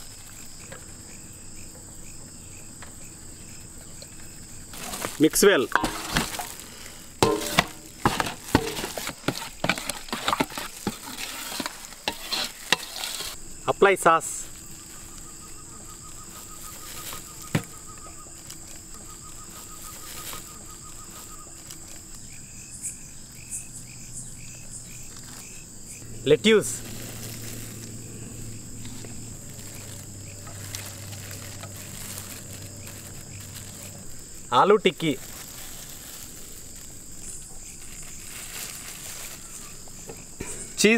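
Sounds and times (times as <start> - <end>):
crickets chirring: 0.0 - 40.9
metal spoon scraping a steel bowl: 8.5 - 13.4
steady low hum: 12.2 - 34.5.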